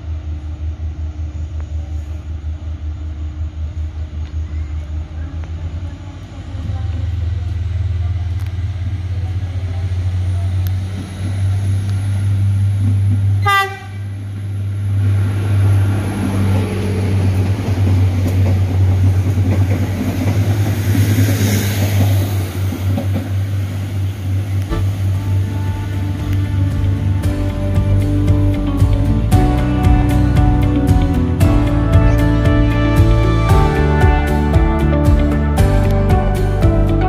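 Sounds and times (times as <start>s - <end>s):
diesel train engine drone: 0.0s - 37.0s
train wheels rumbling: 0.0s - 37.0s
train horn toot: 13.4s - 14.2s.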